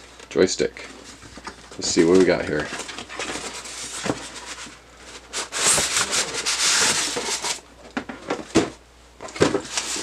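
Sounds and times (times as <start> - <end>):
styrofoam scraping cardboard: 2.5 - 7.6, 9.5 - 10.0.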